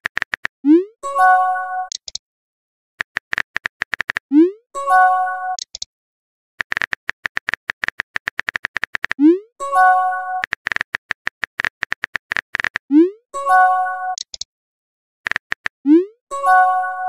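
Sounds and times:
rapid keyboard tap clicks: 0:00.0 - 0:00.5, 0:03.0 - 0:04.2, 0:06.6 - 0:09.2, 0:10.4 - 0:12.9, 0:15.3 - 0:15.8.

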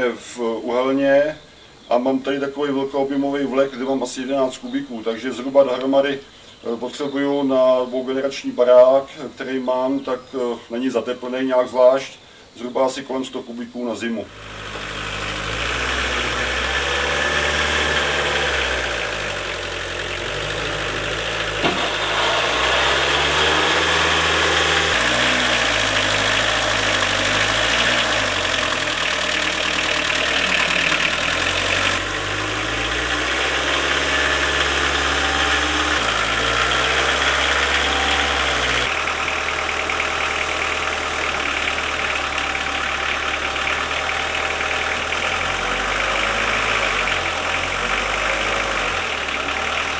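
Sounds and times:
tractor engine revving: 0:14.2 - 0:49.9.

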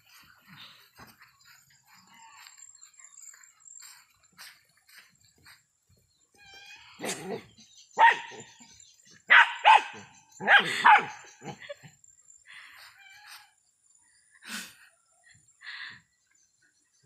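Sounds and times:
dogs barking: 0:07.0 - 0:08.6, 0:09.3 - 0:11.8.

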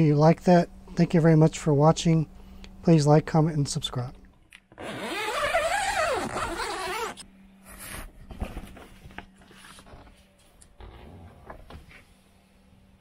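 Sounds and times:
zipper pulled open: 0:04.8 - 0:07.2.

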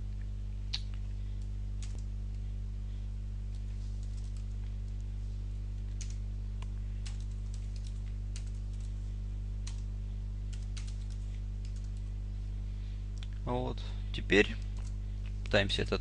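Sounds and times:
steady low hum: 0:00.0 - 0:16.0
keyboard typing clicks: 0:07.0 - 0:08.9, 0:09.6 - 0:09.9, 0:10.5 - 0:12.1.

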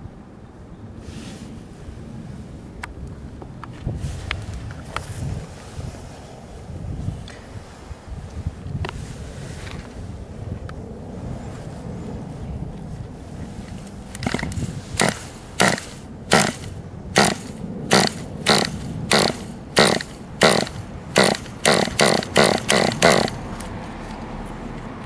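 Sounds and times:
small engine being cranked: 0:14.1 - 0:23.7.

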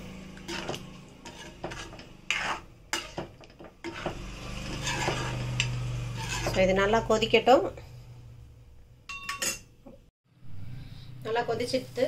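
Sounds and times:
metal spoon stirring thick gravy: 0:00.3 - 0:06.8
spoon scraping and knocking pan: 0:00.3 - 0:07.0.

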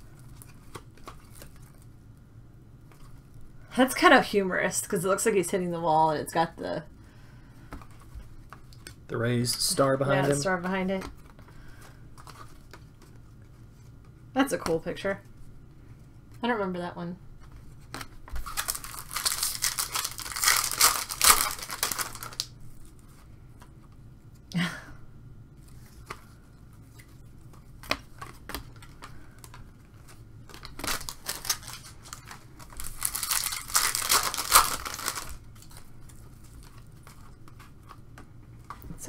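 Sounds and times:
foil wrapper tearing and crinkling: 0:18.3 - 0:22.6, 0:29.4 - 0:37.3.

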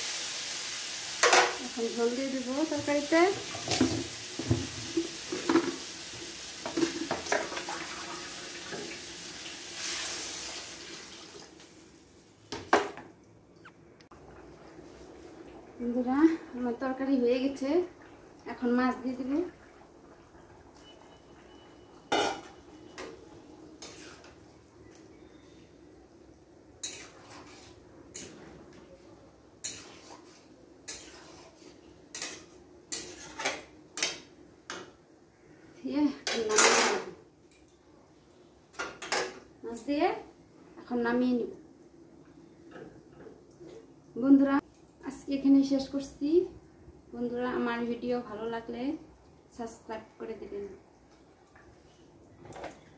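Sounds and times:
water hissing in hot pan: 0:00.0 - 0:12.3
curry sizzling in a pan: 0:00.0 - 0:12.5, 0:14.9 - 0:25.5, 0:26.2 - 0:35.0.

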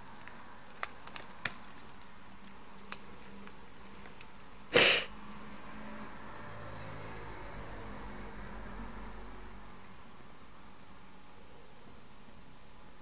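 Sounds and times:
cat nibbling cellophane: 0:00.2 - 0:02.1.

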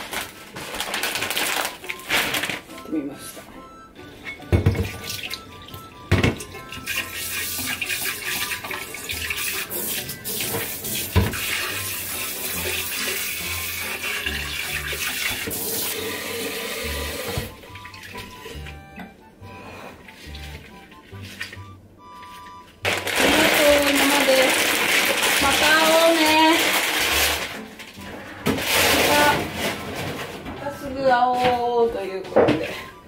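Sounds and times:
background music: 0:00.0 - 0:33.0
water running from a tap: 0:06.5 - 0:18.4, 0:23.0 - 0:27.4.

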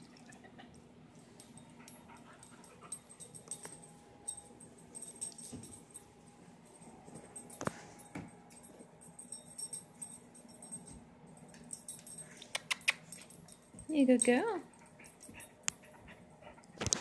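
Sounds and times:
puppy licking and snuffling: 0:12.3 - 0:13.4.

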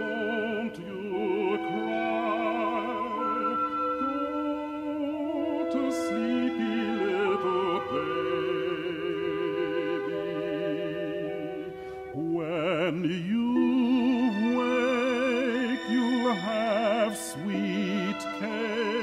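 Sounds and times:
man singing with vibrato: 0:00.0 - 0:19.0
sustained accompaniment: 0:00.0 - 0:19.0.

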